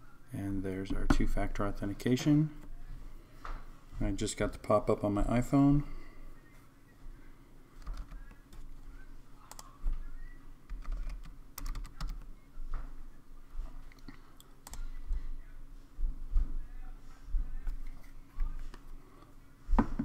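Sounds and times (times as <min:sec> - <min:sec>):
computer keyboard keystrokes: 0:07.8 - 0:08.2, 0:10.7 - 0:12.2.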